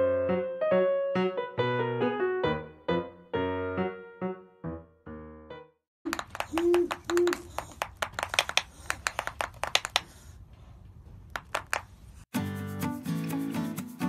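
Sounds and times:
owl bill-snapping clacks: 0:06.1 - 0:10.3.

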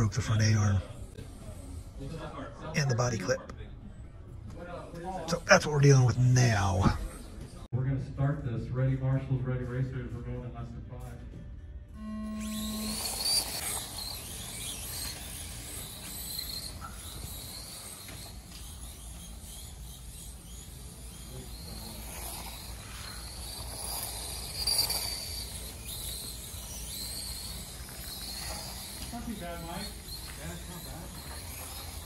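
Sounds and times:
toy car electric motors whining: 0:12.0 - 0:32.0.

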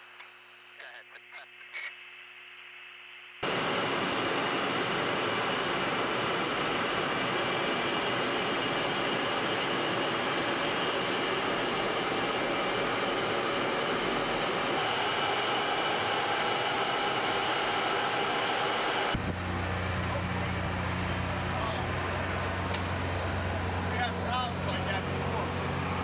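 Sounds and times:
jet aircraft rushing hiss: 0:03.4 - 0:20.3.

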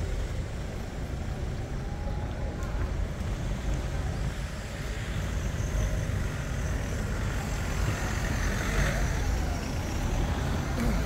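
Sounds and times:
traffic rumble: 0:00.0 - 0:11.0.

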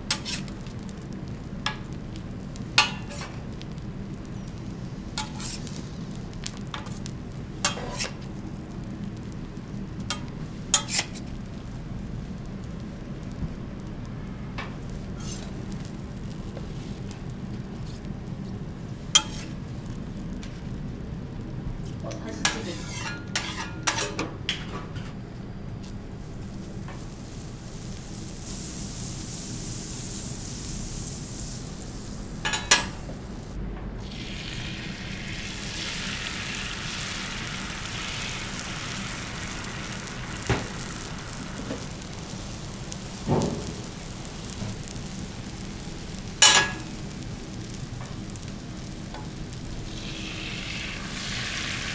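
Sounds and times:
food sizzling on a griddle: 0:00.0 - 0:24.8, 0:25.7 - 0:51.9
cooking utensils clacking: 0:07.7 - 0:08.2, 0:22.4 - 0:25.1, 0:46.4 - 0:46.9.

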